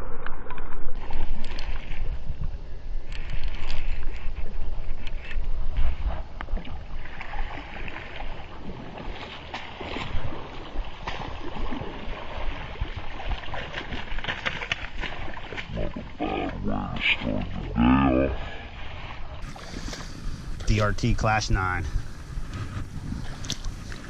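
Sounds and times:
crackles and clicks: 0:00.0 - 0:06.9
fish splashing in shallow water: 0:00.9 - 0:20.8, 0:21.9 - 0:24.0.

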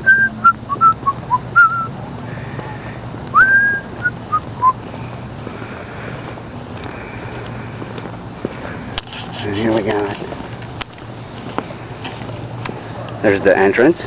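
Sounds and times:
person whistling a tune: 0:00.0 - 0:01.9, 0:03.3 - 0:04.8.

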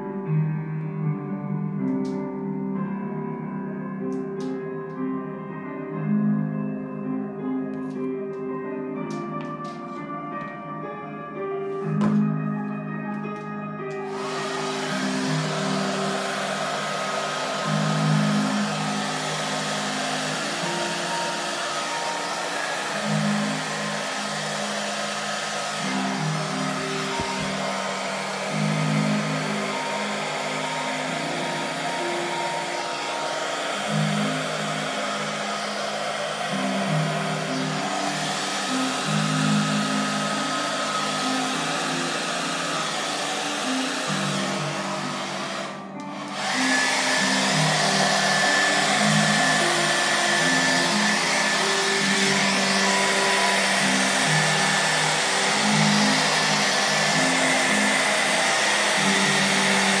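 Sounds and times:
hair dryer blowing: 0:13.9 - 1:00.0.

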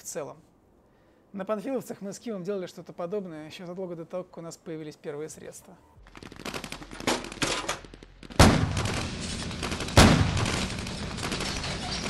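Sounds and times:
rattling gunfire: 0:06.0 - 0:12.0
loud booms of blasts: 0:08.3 - 0:11.6.

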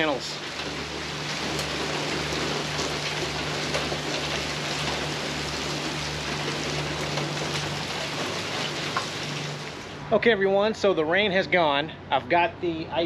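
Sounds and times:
steady rain falling: 0:00.0 - 0:10.0.

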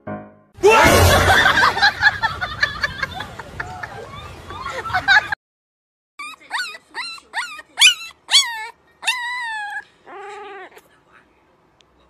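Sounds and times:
puppy howling: 0:06.2 - 0:10.8.

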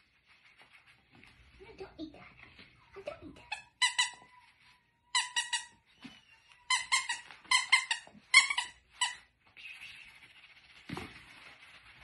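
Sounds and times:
rubber dog toy squeaking: 0:03.4 - 0:04.4, 0:05.1 - 0:09.2.

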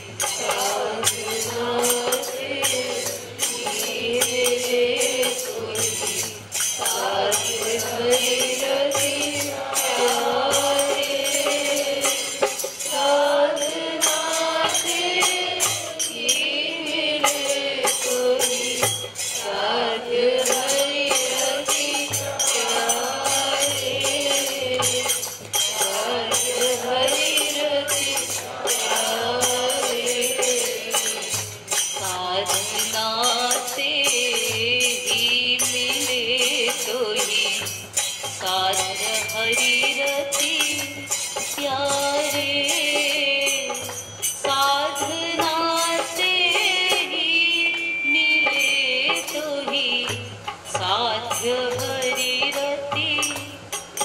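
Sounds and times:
jingling hand percussion: 0:00.0 - 0:54.0
voices singing slow melody: 0:00.0 - 0:54.0.

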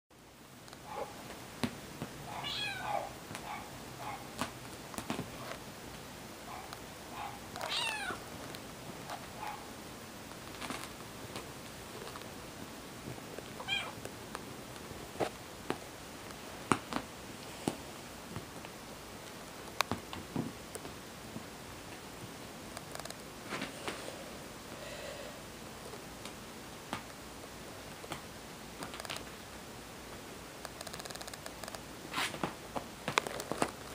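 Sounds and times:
kitten meowing: 0:02.4 - 0:03.1, 0:07.6 - 0:08.2, 0:13.6 - 0:14.0.

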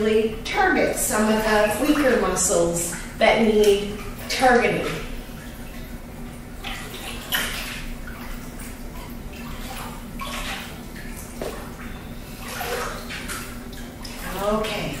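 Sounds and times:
pool water splashing: 0:00.0 - 0:15.0
steady low hum: 0:00.0 - 0:15.0.

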